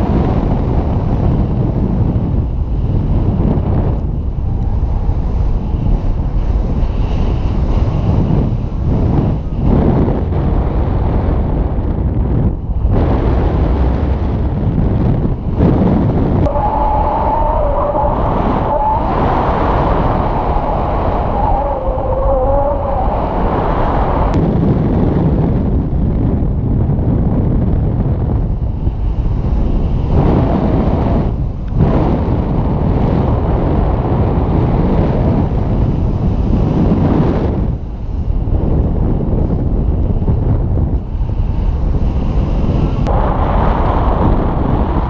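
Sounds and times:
wind buffeting microphone: 0:00.0 - 0:45.0
wavering whistle: 0:16.5 - 0:23.7.

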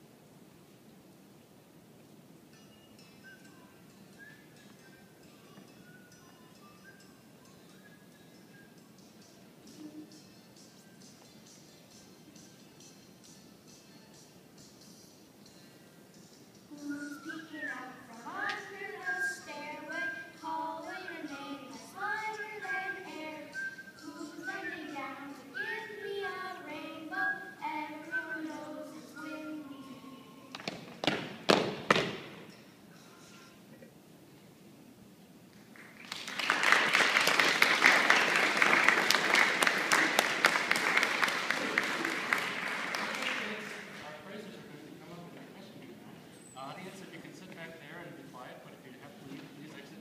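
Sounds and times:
children singing: 0:16.7 - 0:30.6
audience applauding: 0:35.7 - 0:44.1.

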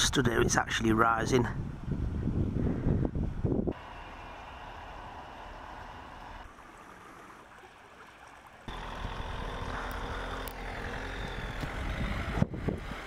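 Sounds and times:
van engine running: 0:03.7 - 0:06.5, 0:08.7 - 0:13.0
flooded river rushing: 0:03.8 - 0:13.0
water washing around vehicle: 0:03.8 - 0:13.0.

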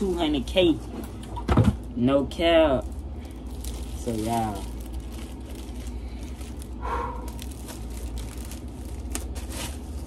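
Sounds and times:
steady low hum: 0:00.0 - 0:10.0
plastic bag crinkling: 0:02.2 - 0:10.0.

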